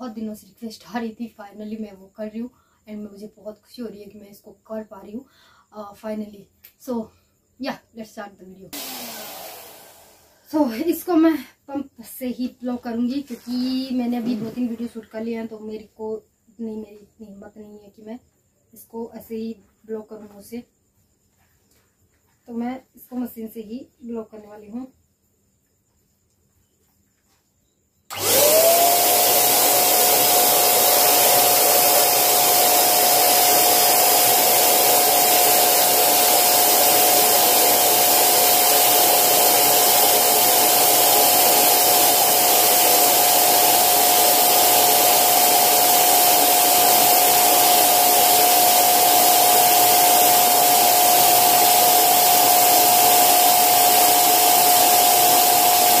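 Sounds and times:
electric pump motor whine: 8.8 - 10.4, 28.1 - 56.0.

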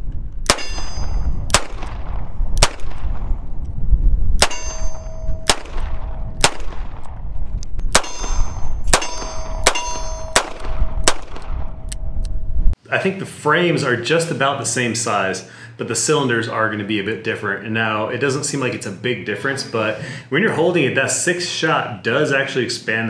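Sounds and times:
revolver gunshots: 0.4 - 3.4, 4.4 - 7.2, 7.9 - 11.8
steel target clanging: 0.5 - 1.4, 4.4 - 5.7, 7.9 - 11.2.

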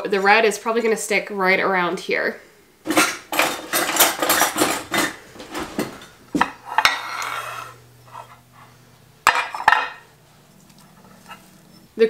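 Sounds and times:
bowls clattering: 2.8 - 8.4, 9.2 - 11.6
spatula scraping mixing bowl: 6.5 - 8.8, 10.5 - 11.8.

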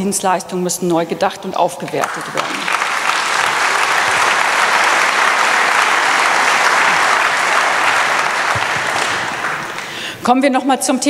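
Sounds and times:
audience applauding: 2.0 - 10.1.

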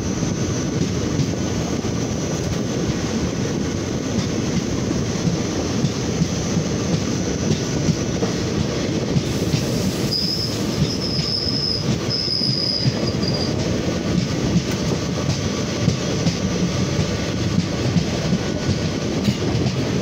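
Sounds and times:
train wheels rumbling on rail: 0.0 - 20.0
high wheel squeal: 9.6 - 13.6.

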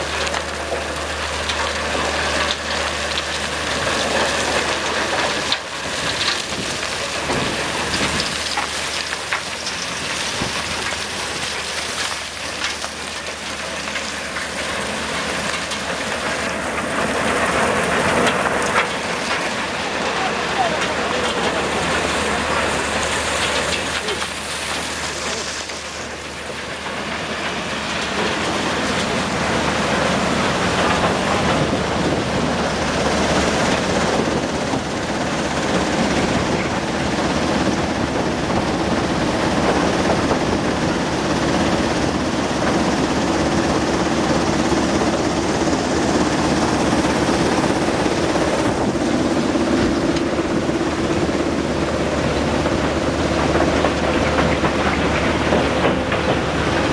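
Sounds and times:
low machinery hum: 0.0 - 56.9
water and slurry rushing: 0.0 - 56.9.

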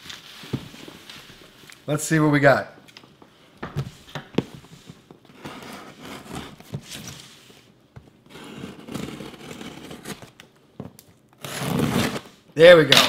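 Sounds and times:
knife scraping packing tape: 8.3 - 10.4, 11.4 - 12.3.

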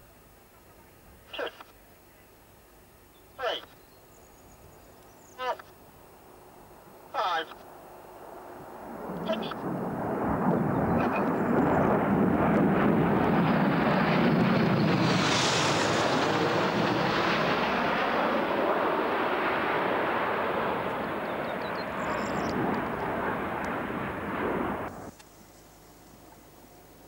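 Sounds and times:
jets flying past: 8.2 - 25.1.

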